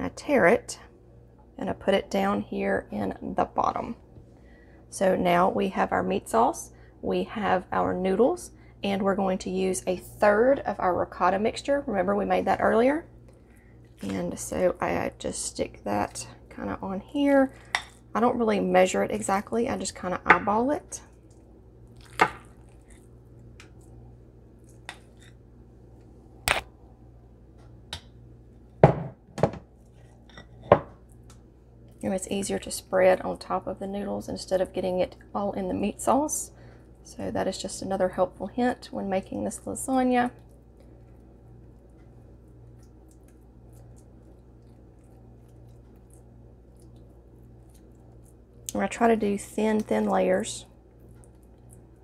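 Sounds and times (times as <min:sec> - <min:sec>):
faint steady hum: 0:00.0 - 0:52.0
spoon spreading cheese squishing: 0:21.1 - 0:24.0, 0:24.6 - 0:25.4, 0:40.4 - 0:48.8, 0:50.8 - 0:52.0.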